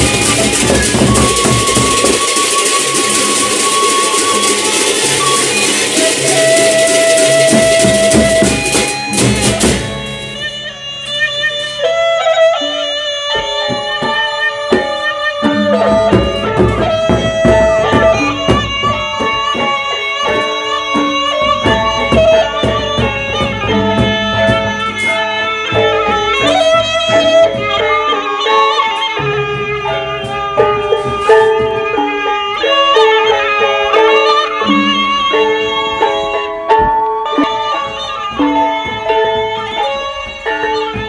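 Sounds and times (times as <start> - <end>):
clashing cymbals: 0.0 - 41.0
drum strokes: 0.0 - 41.0
gamelan melody of held notes: 0.0 - 41.0.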